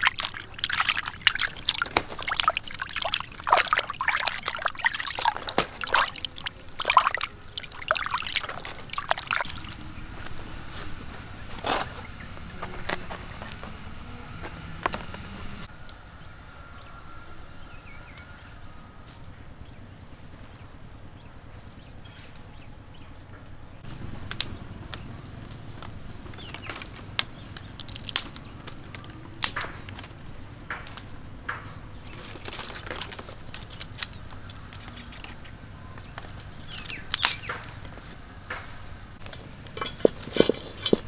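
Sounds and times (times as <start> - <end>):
twigs crackling in fire: 0.0 - 13.9, 23.8 - 41.0.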